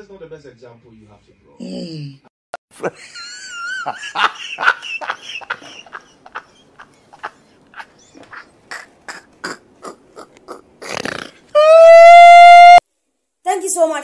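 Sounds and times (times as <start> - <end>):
man laughing: 2.7 - 10.7.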